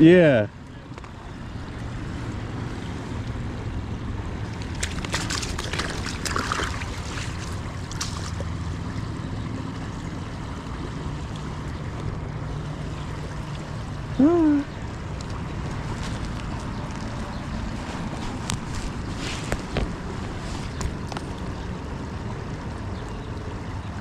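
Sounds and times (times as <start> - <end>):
flowing river water: 0.0 - 24.0
short rustle: 17.8 - 20.8.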